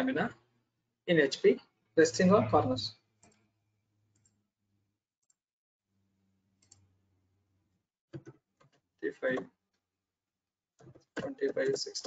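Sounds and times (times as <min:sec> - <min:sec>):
computer mouse clicks: 0:06.6 - 0:06.9.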